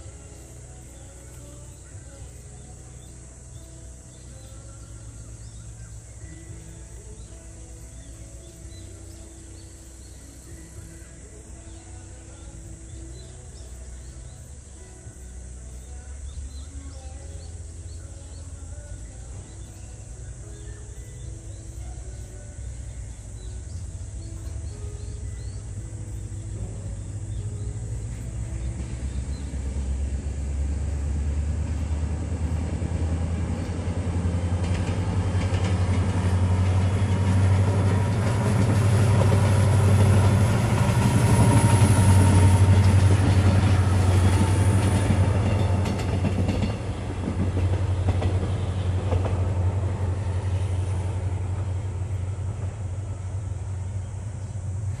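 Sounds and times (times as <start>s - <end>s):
diesel locomotive engine drone: 0.0s - 55.0s
train wheels clicking on rail joints: 30.9s - 55.0s.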